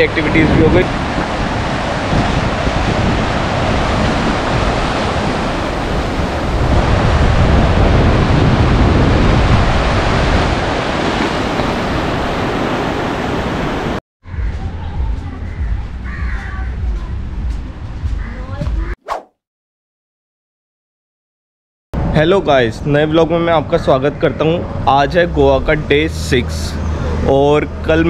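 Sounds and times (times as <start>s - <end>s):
surf washing over rocks: 0.0s - 14.0s
wind rumbling on microphone: 0.0s - 19.0s.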